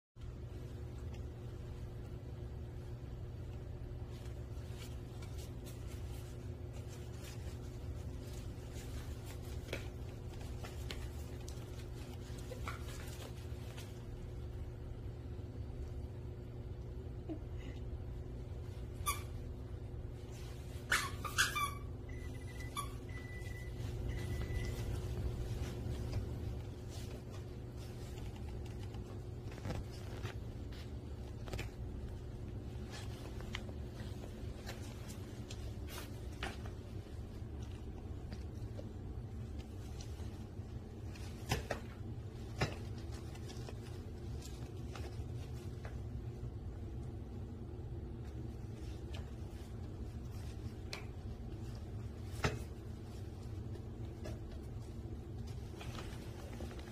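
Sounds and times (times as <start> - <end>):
steady low hum: 0.2 - 56.9
puppy yipping: 20.8 - 24.8.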